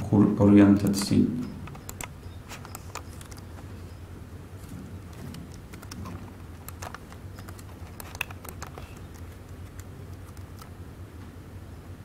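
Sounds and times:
steady low hum: 0.0 - 12.0
keyboard and mouse clicks: 0.9 - 3.7, 5.0 - 10.8.

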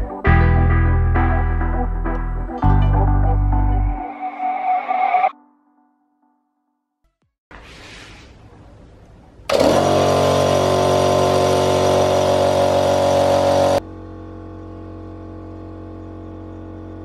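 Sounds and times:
air compressor running: 9.5 - 17.0.

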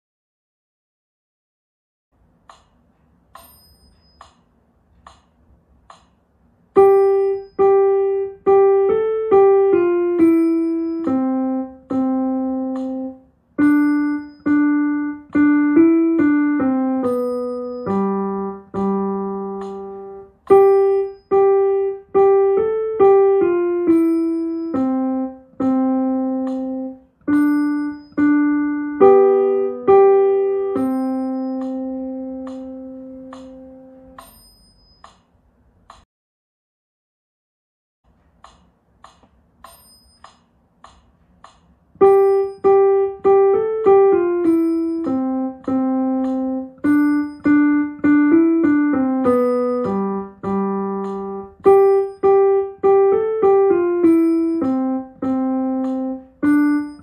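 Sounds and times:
piano melody: 6.7 - 34.3, 42.0 - 57.0.

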